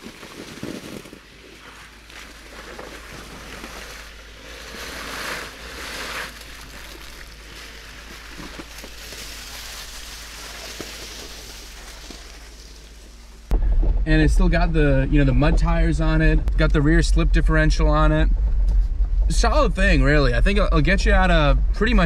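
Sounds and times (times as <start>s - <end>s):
low engine rumble: 0.0s - 22.0s
wind and road noise: 0.0s - 22.0s.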